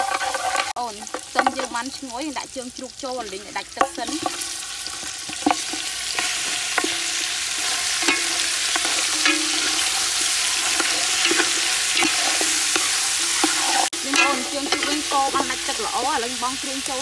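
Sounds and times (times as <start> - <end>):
spatula scraping metal pot: 0.0 - 1.8, 3.6 - 16.7
meat sizzling in hot oil: 0.0 - 17.0
pot ringing: 3.6 - 17.0.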